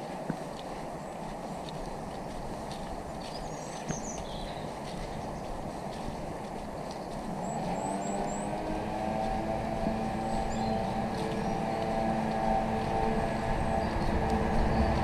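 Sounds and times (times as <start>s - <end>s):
distant engine droning: 5.8s - 15.0s
low rumble: 7.3s - 15.0s.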